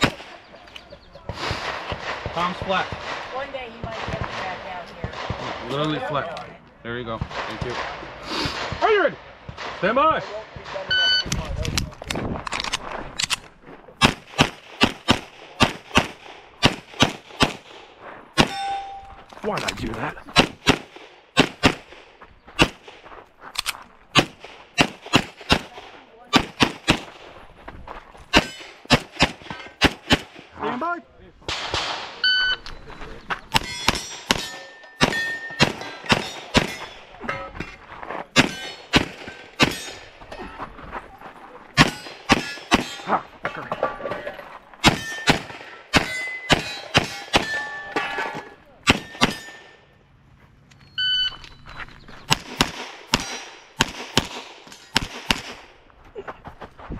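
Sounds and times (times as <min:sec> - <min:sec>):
pistol shots: 0:00.0 - 0:00.4, 0:14.0 - 0:17.8, 0:18.4 - 0:19.0, 0:20.4 - 0:23.0, 0:24.1 - 0:27.3, 0:28.3 - 0:30.5, 0:33.5 - 0:37.1, 0:38.4 - 0:40.1, 0:41.8 - 0:43.1, 0:44.8 - 0:49.8, 0:52.3 - 0:55.8
metallic ring: 0:18.5 - 0:19.3, 0:33.6 - 0:37.5, 0:46.0 - 0:50.0
handgun shots: 0:44.8 - 0:47.9, 0:52.3 - 0:55.6.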